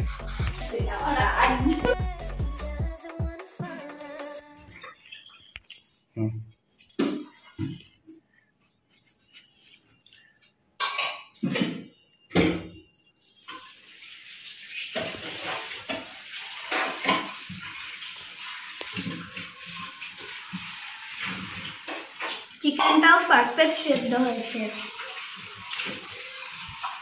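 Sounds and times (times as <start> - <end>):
dishes and cutlery clattering: 10.8 - 13.8, 14.9 - 17.7, 21.3 - 23.2
tap running into a sink: 14.7 - 23.0.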